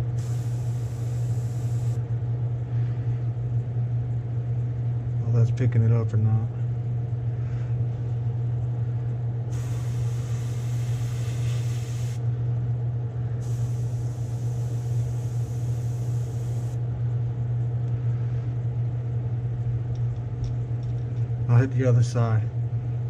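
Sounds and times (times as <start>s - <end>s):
airbrush hiss: 0.0s - 2.0s, 9.5s - 12.2s, 13.4s - 16.8s
exhaust fan low hum: 0.0s - 23.0s.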